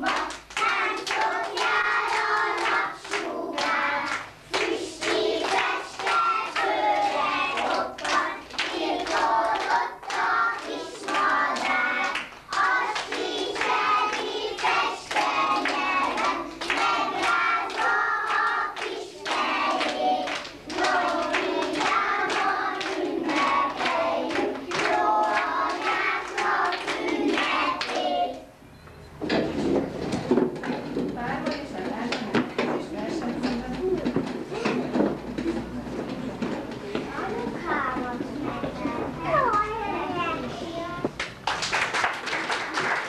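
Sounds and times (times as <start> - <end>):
hand clapping: 0.0 - 28.4, 41.1 - 43.0
children singing together: 0.0 - 28.6.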